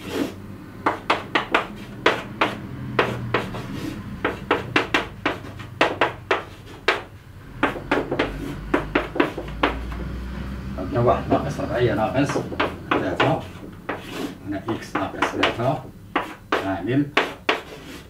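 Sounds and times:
chalk writing on a chalkboard: 0.0 - 10.0, 12.2 - 18.0.

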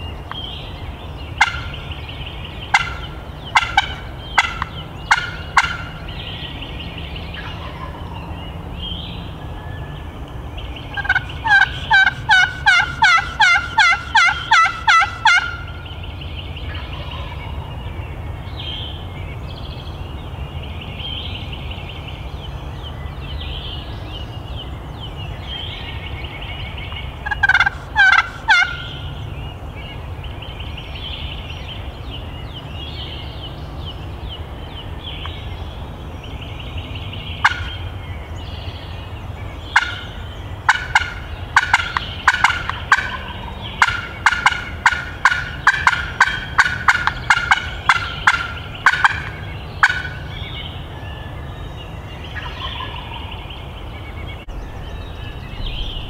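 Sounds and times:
turkey gobbling: 1.4 - 1.7, 2.7 - 6.0, 7.4 - 8.0, 11.0 - 15.8, 27.2 - 29.0, 37.4 - 37.8, 39.7 - 40.1, 40.7 - 50.2, 52.4 - 53.4
sharp quick turkey calls: 11.0 - 15.7, 27.2 - 28.9.

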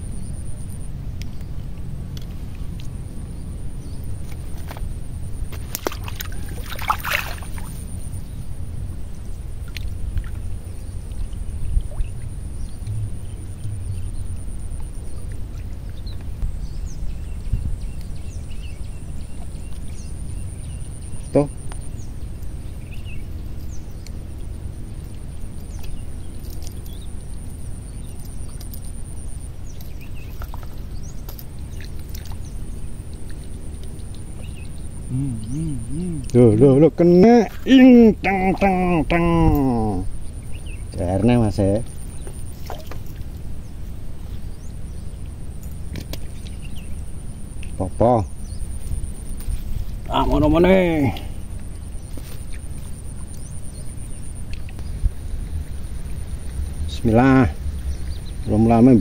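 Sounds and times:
water gurgling and sloshing: 0.0 - 35.1, 35.8 - 59.0
steady low rumble: 0.0 - 59.0
splashing and rustling: 4.2 - 8.2, 29.8 - 34.4, 42.1 - 44.4.

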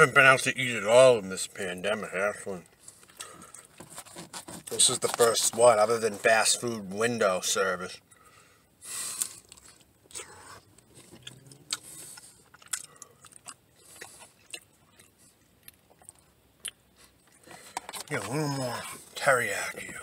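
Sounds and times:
person chewing food: 2.8 - 5.2, 9.0 - 18.3.

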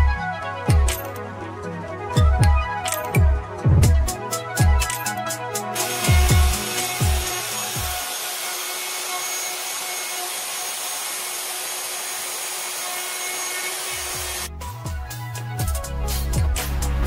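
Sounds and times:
music with heavy bass: 0.0 - 8.0, 14.4 - 17.0
router motor whining: 5.8 - 14.5.

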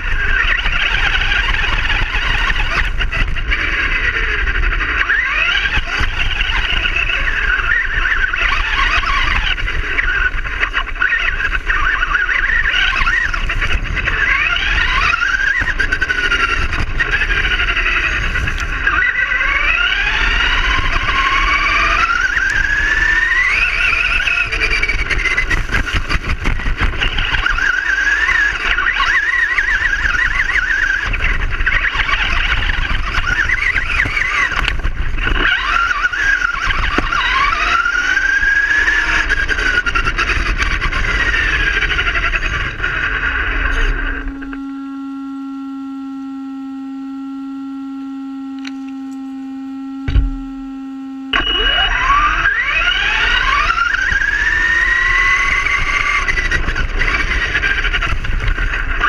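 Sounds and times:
low rumble of wheels: 0.0 - 59.0
rc car motor whining: 0.0 - 59.0.

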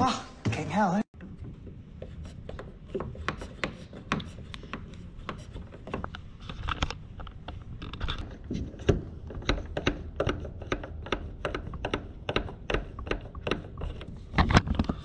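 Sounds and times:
plastic pump plunger: 7.9 - 15.0.

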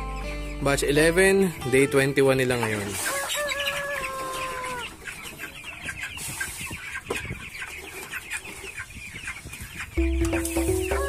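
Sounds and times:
background music: 0.0 - 3.4, 10.0 - 11.0
chicks peeping: 0.0 - 11.0.

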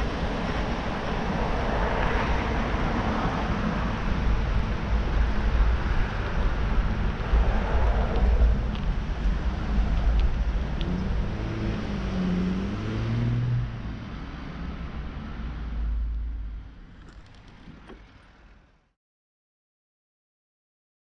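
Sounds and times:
wind on microphone: 0.0 - 12.0
car passing: 0.1 - 18.6.

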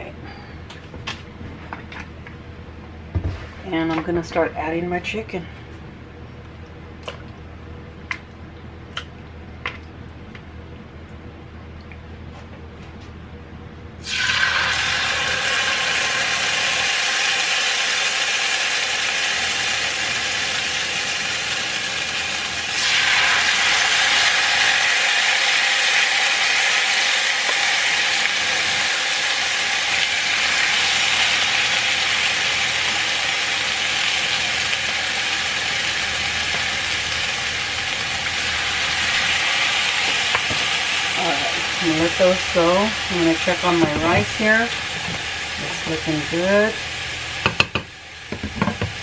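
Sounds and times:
chicken sizzling in hot oil: 14.0 - 49.0.

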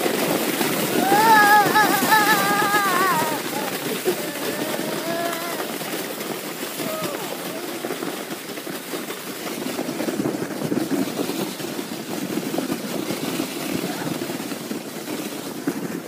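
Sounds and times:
sled scraping over snow: 0.0 - 16.0
wind buffeting microphone: 0.0 - 16.0
child squealing: 0.9 - 5.7.

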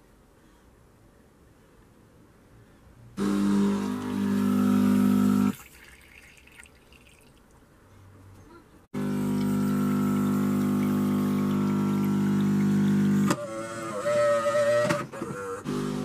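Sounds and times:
coffee machine pump buzzing: 3.2 - 5.6, 9.0 - 14.1, 15.6 - 16.0
water splashing into jug: 5.5 - 7.6, 9.2 - 13.3.

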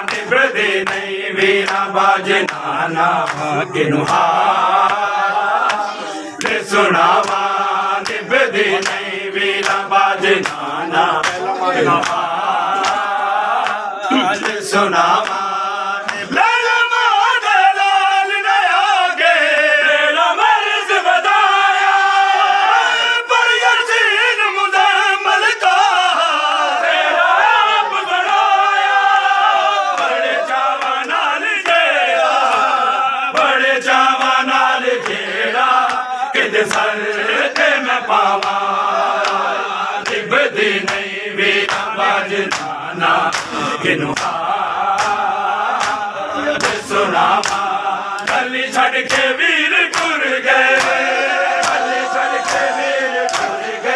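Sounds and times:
men chanting in unison: 0.0 - 53.9
chest-beating slaps: 42.5 - 49.3.

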